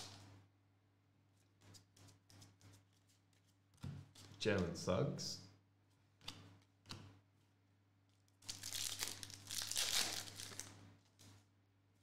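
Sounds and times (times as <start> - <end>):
foil wrapper crinkling: 8.4 - 10.7.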